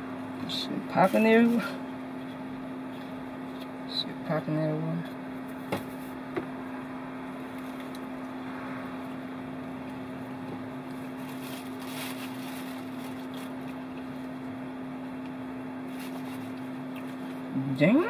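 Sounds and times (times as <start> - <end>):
car engine hum: 4.4 - 18.0.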